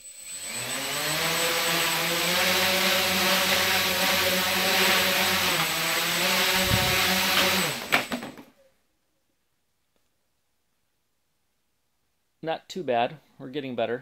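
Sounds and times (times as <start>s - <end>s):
quadcopter motors whining: 0.0s - 8.2s.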